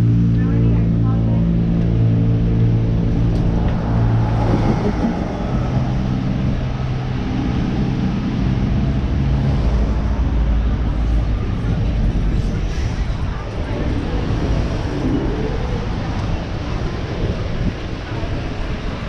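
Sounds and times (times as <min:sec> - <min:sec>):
vehicle engine humming: 0:00.0 - 0:18.4
passing traffic: 0:00.0 - 0:19.0.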